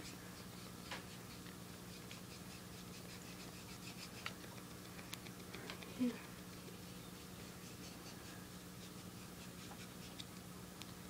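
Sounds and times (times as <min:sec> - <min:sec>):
chalk scratching on cue tip: 0:00.0 - 0:04.8, 0:06.8 - 0:10.3.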